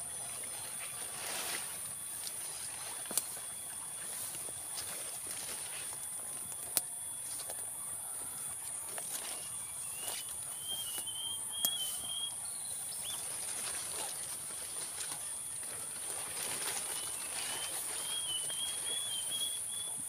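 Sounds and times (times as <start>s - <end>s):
high-pitched insect drone: 0.0s - 20.0s
bird chirping: 7.8s - 14.0s, 16.6s - 20.0s.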